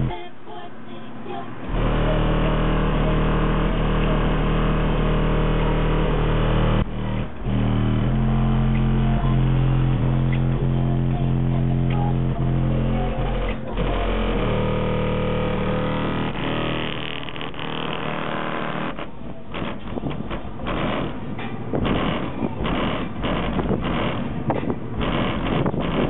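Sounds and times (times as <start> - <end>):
loud bass-heavy music from car: 1.7 - 17.5.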